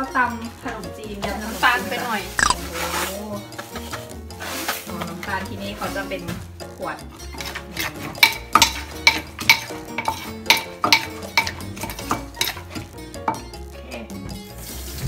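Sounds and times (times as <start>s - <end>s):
wooden pestle pounding in mortar: 8.2s - 12.6s.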